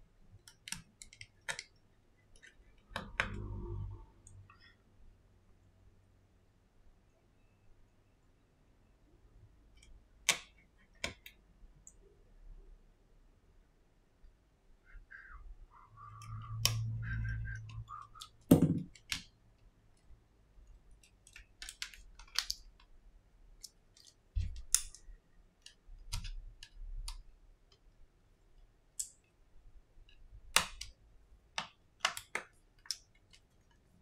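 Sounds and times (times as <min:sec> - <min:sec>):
small tools clicking and tapping: 0:20.9 - 0:22.9.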